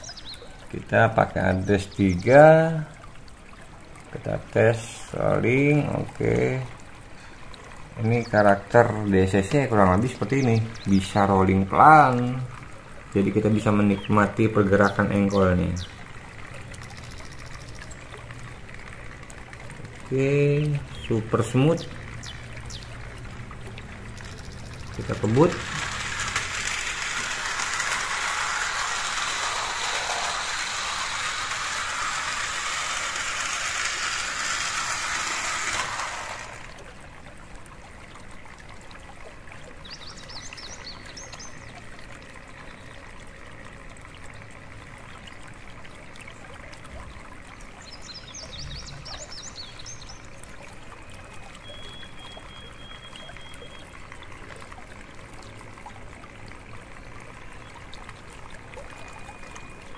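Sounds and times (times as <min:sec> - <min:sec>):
high chirps: 0:24.2 - 0:34.4
model train rattling on track: 0:24.2 - 0:36.8.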